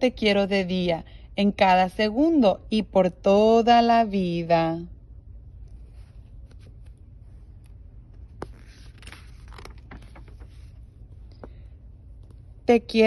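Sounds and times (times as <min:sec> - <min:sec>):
book pages rustling: 0:05.6 - 0:12.6.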